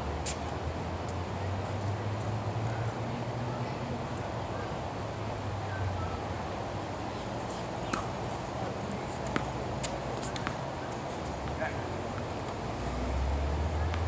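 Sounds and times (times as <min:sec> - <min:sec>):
tennis balls struck and bouncing: 0:07.1 - 0:12.6, 0:13.8 - 0:14.0.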